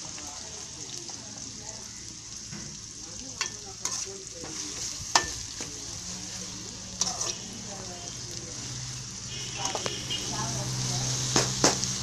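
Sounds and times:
onions sizzling in a pan: 0:00.0 - 0:12.0
metal skimmer clinking on pan: 0:03.4 - 0:05.7.

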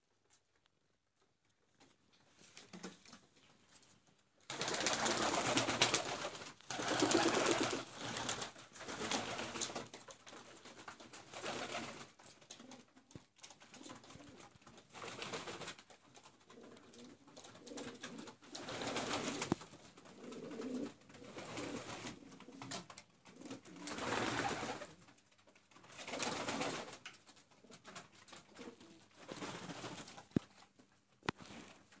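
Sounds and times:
pigeons cooing: 0:06.8 - 0:07.9, 0:20.1 - 0:22.5.

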